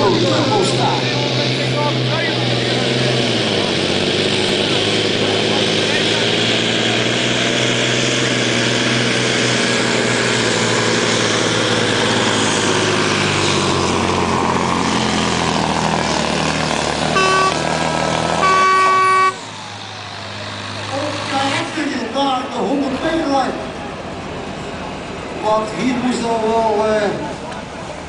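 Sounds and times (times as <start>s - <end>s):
diesel truck engine under load: 0.0s - 28.0s
air horn blasts: 17.1s - 17.6s, 18.4s - 19.4s.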